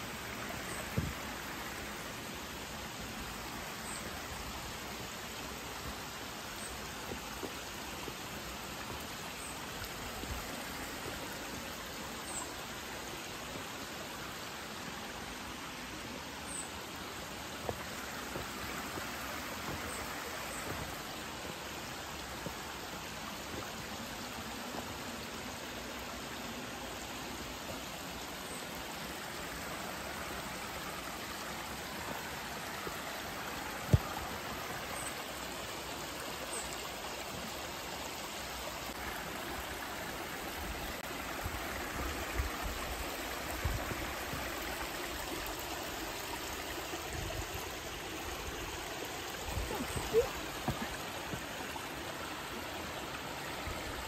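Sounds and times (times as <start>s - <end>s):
water running over rock: 27.3s - 54.0s.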